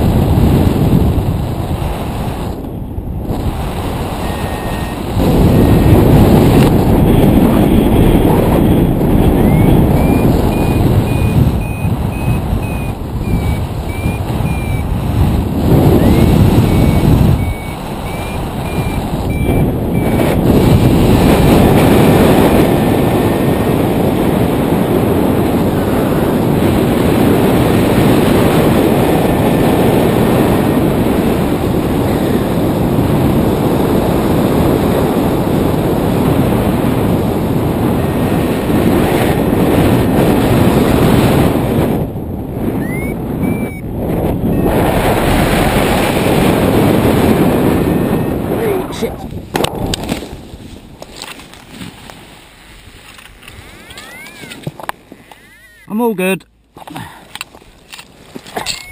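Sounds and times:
wind rushing over microphone: 0.0 - 58.9
variometer short high beeps: 4.2 - 6.0, 9.3 - 14.9, 16.0 - 20.4, 42.8 - 43.9.

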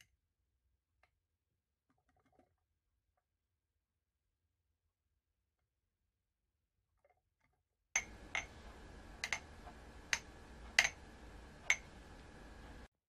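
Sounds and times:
sharp clicks: 8.0 - 12.9
faint steady hum: 8.0 - 13.0.

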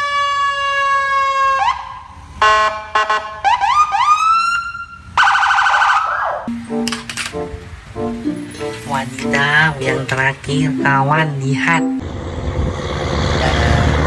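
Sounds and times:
police siren: 0.0 - 6.5.

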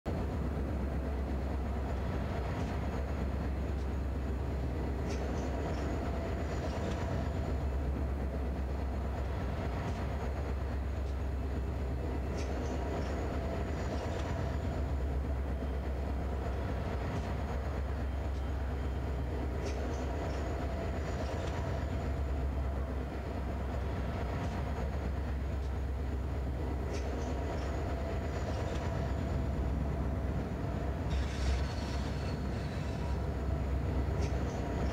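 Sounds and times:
train wheel clicks: 4.7 - 7.6, 12.0 - 14.9, 19.4 - 22.3, 24.2 - 29.2, 31.0 - 34.9.

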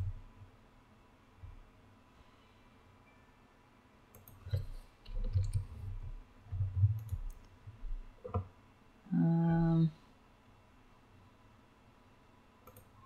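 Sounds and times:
computer mouse clicks: 4.1 - 5.7, 6.5 - 7.6, 12.6 - 13.0
keyboard key presses: 4.1 - 5.7.

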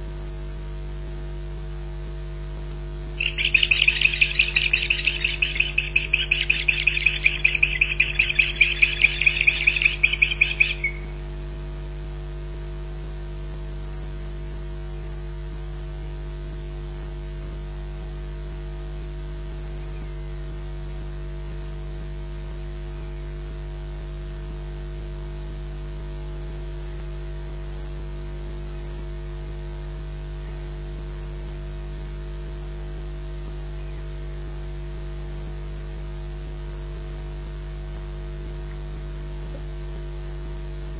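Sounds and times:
electrical hum and hiss: 0.0 - 40.9
bird piping alarm chirps: 3.2 - 11.3.

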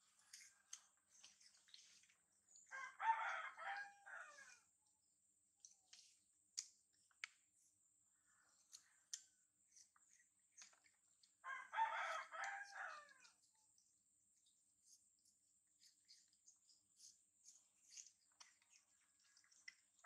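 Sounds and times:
rooster crowing: 2.7 - 4.6, 11.4 - 13.3.

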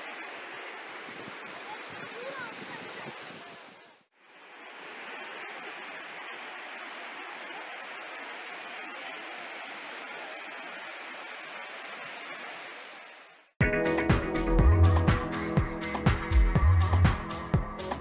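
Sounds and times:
waterfall rushing: 0.0 - 13.5.

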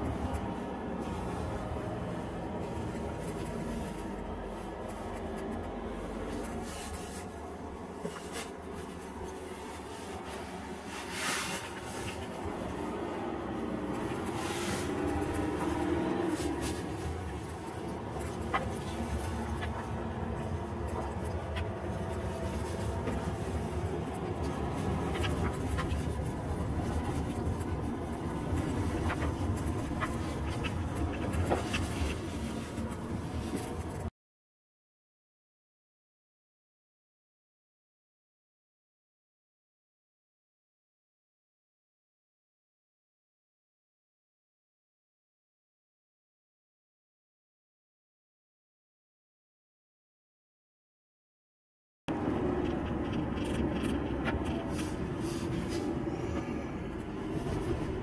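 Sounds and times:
car engine and road noise: 0.0 - 34.1, 52.1 - 58.0.

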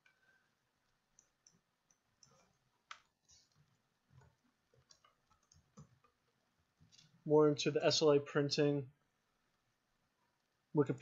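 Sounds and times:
computer mouse clicks: 0.8 - 6.2
keyboard typing: 1.1 - 6.2.

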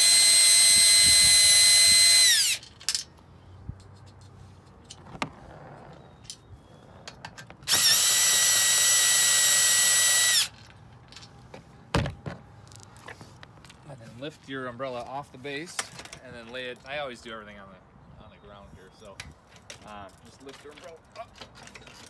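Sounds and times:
cordless drill whining: 0.0 - 2.6, 7.6 - 10.6.

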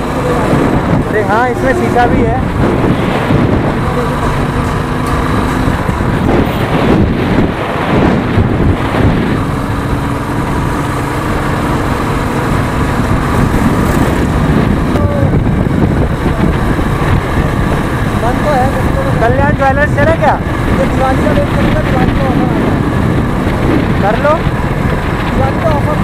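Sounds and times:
motorcycle engine running: 0.0 - 26.0
wind buffeting microphone: 0.0 - 26.0.

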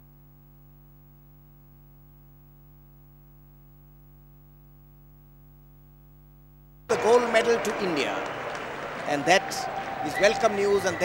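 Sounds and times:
buzzy electrical hum: 0.0 - 11.0.

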